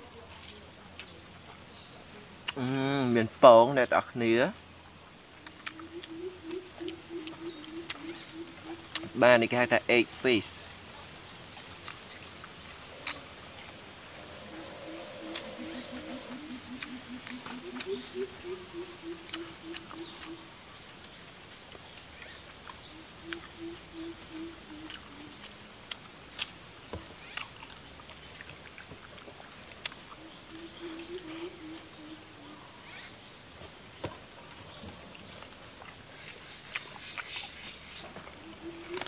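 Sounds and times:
insect drone: 0:00.0 - 0:39.0
bird chirps: 0:05.6 - 0:09.2, 0:12.1 - 0:20.5
person chewing: 0:08.7 - 0:09.1, 0:11.5 - 0:18.1, 0:19.2 - 0:20.3, 0:24.9 - 0:26.5, 0:27.3 - 0:30.2, 0:35.4 - 0:38.0
animal hooting: 0:12.6 - 0:20.5, 0:38.4 - 0:39.0.

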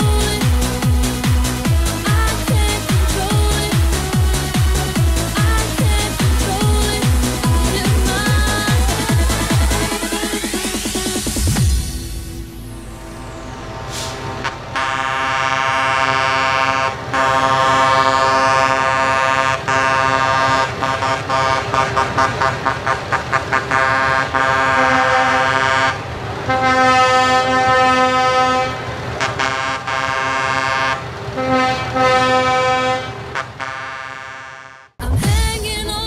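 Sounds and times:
low engine hum: 0:00.0 - 0:29.6
truck air horns: 0:12.2 - 0:34.9.

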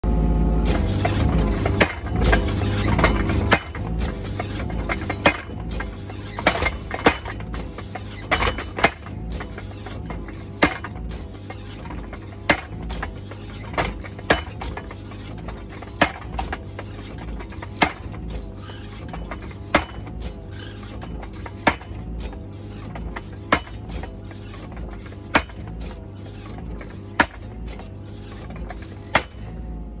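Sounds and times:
excavator engine running: 0:00.0 - 0:30.0
post driver hammering post: 0:00.7 - 0:29.4.

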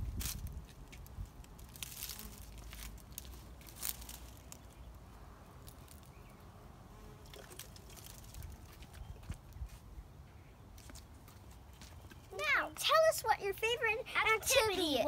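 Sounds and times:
water pattering on leaves: 0:00.2 - 0:05.0, 0:05.6 - 0:06.2, 0:07.2 - 0:09.5.

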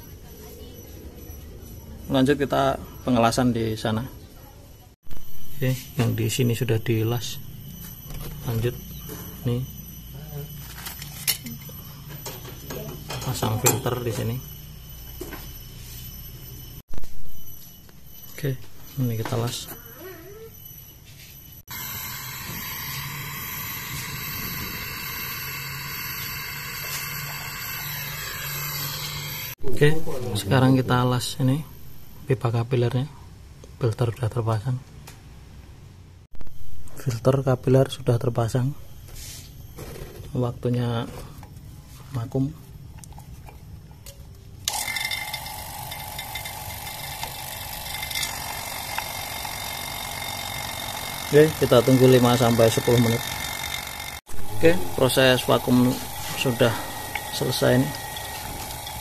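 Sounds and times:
torch flame hissing: 0:21.7 - 0:29.6
vacuum pump whining: 0:21.7 - 0:29.6, 0:44.6 - 0:59.0.

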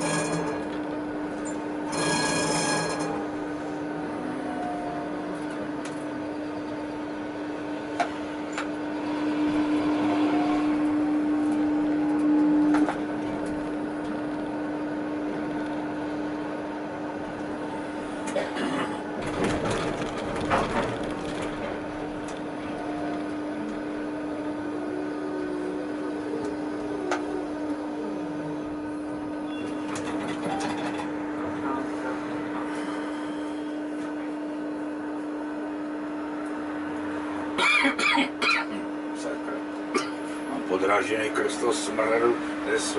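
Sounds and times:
tram electrical hum: 0:00.0 - 0:42.9
knocks and rattling: 0:19.2 - 0:21.9.

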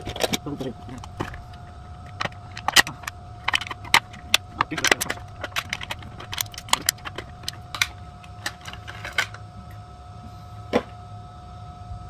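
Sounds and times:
plastic packaging crinkling and clicking: 0:00.0 - 0:09.4
faint steady hum: 0:00.0 - 0:12.0.

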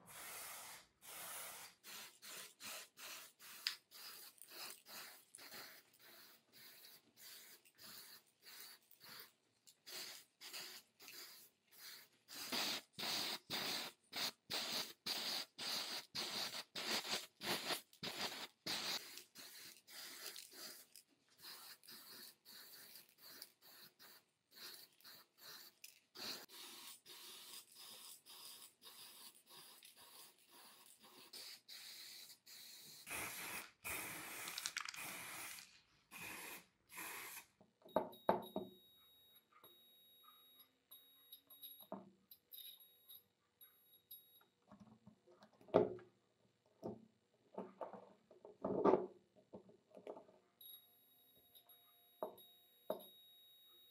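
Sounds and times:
aerosol spray hissing: 0:00.1 - 0:37.5.

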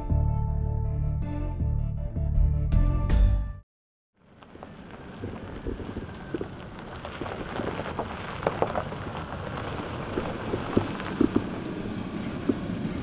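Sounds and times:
tyres crunching on gravel: 0:04.2 - 0:13.0
stones popping and clicking: 0:04.9 - 0:12.7.

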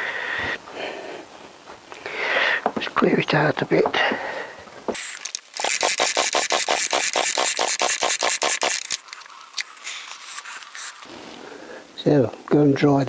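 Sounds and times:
chainsaw engine turning over: 0:05.0 - 0:11.1.

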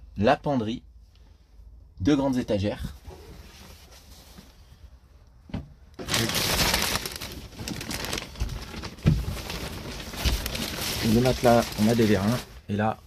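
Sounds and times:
plastic wrapping crinkling: 0:06.0 - 0:12.6.

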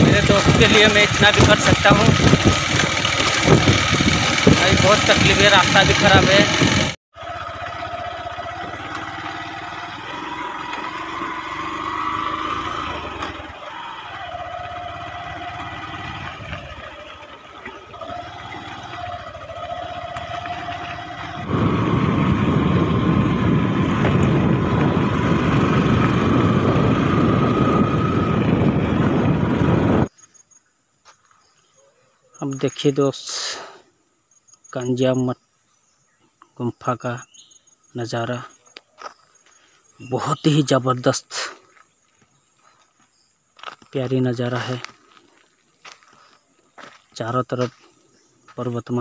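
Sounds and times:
motorcycle engine running: 0:00.0 - 0:30.1, 0:41.6 - 0:43.8, 0:44.4 - 0:48.6.

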